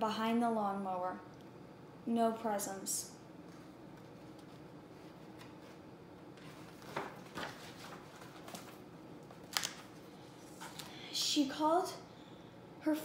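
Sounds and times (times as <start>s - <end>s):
book page turning rustles: 6.4s - 10.9s.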